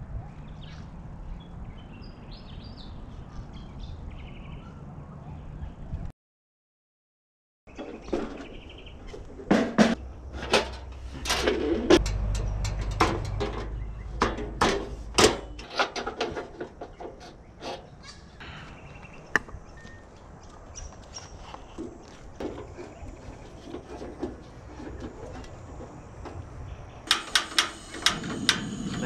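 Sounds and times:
low hum: 0:10.0 - 0:15.6
utensils clicking and knocking: 0:27.1 - 0:29.0.

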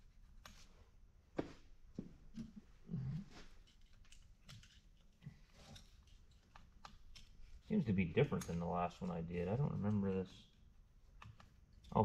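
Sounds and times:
small steel parts clicking: 0:03.6 - 0:10.6.

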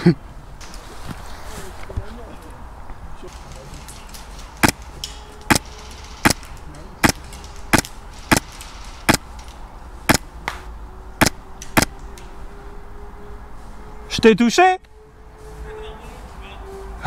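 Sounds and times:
suppressed airsoft rifle shots: 0:06.2 - 0:09.3.

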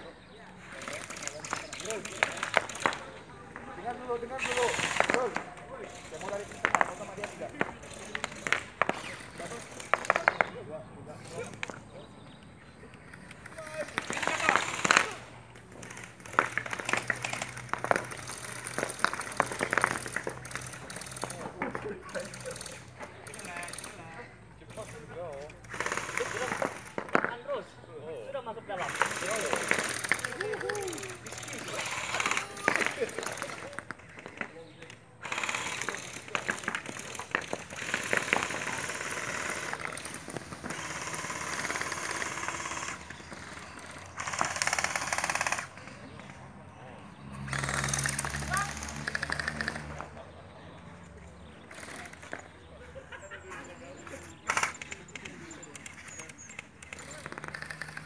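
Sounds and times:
gel blasters firing full auto: 0:04.4 - 0:05.5, 0:14.0 - 0:21.4, 0:25.7 - 0:27.0, 0:28.8 - 0:33.7, 0:35.2 - 0:45.7.

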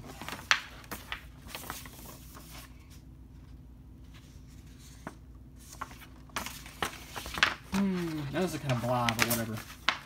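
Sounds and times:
paper rustling: 0:00.0 - 0:10.0.

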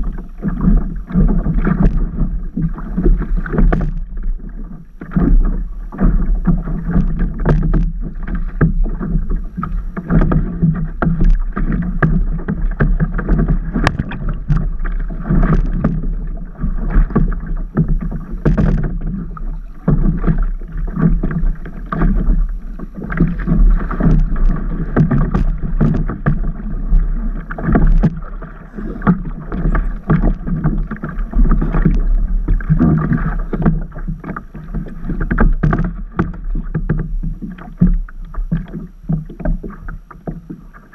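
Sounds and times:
water sloshing against paddleboard: 0:00.0 - 0:40.9
water splashes: 0:00.0 - 0:40.9.

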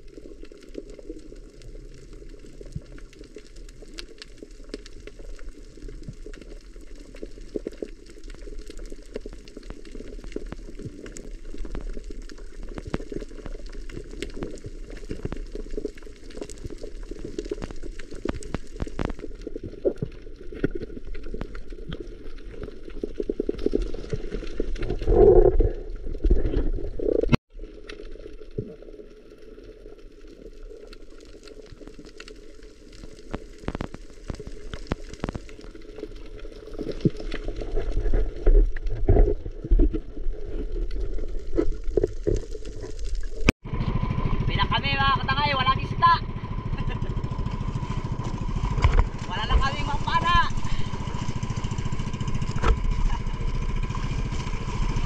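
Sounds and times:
small crackling clicks: 0:00.0 - 0:25.1, 0:25.8 - 0:43.5
muffled underwater water rush: 0:00.0 - 0:55.0
bubbling surge: 0:45.8 - 0:55.0.

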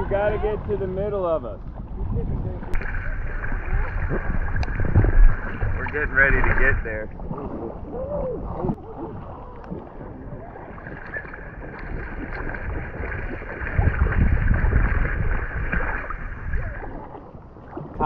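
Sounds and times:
water lapping against inner tube: 0:00.0 - 0:18.0
wind buffeting microphone: 0:00.0 - 0:18.0.

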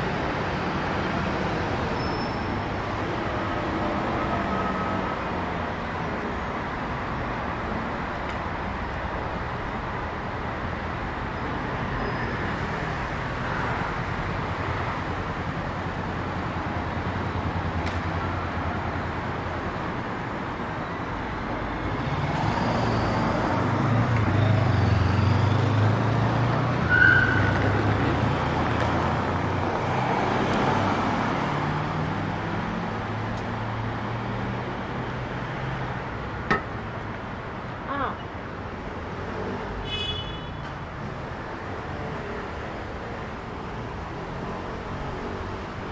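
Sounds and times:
cars passing: 0:00.0 - 0:45.9
short high squeak: 0:02.0 - 0:02.5.

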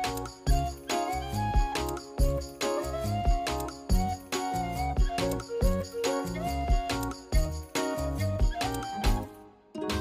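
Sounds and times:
music with a steady beat: 0:00.0 - 0:10.0.

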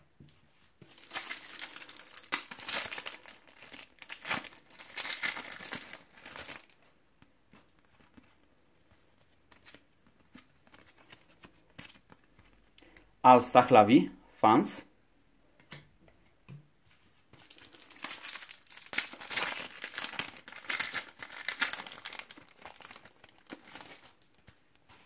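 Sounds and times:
foil wrapper crinkling and tearing: 0:00.8 - 0:06.9, 0:17.4 - 0:24.5.

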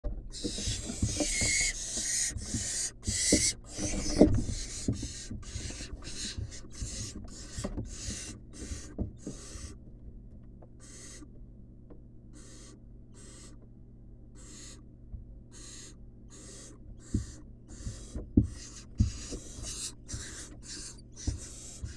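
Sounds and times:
owlets hissing begging calls: 0:00.4 - 0:09.7, 0:10.8 - 0:11.2, 0:12.4 - 0:13.6, 0:14.4 - 0:14.8, 0:15.6 - 0:21.9
knocks against wooden nest box: 0:16.9 - 0:21.9.

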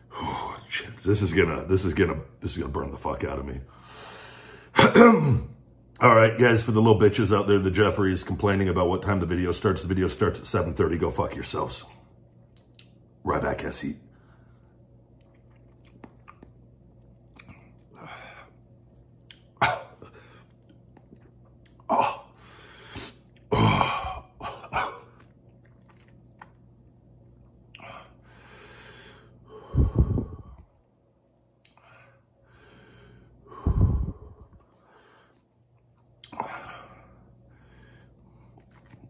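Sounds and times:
man's mouth smacking: 0:15.2 - 0:16.6, 0:17.2 - 0:18.0, 0:19.2 - 0:19.6
low throat sounds: 0:23.5 - 0:25.2, 0:29.7 - 0:30.6, 0:33.5 - 0:34.6.

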